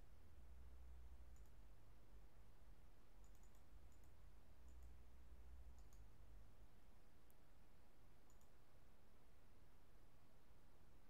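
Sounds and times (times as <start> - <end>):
low steady hum: 0.0 - 11.0
computer mouse clicks: 1.3 - 1.6, 3.2 - 5.0, 5.7 - 6.2, 8.2 - 8.6.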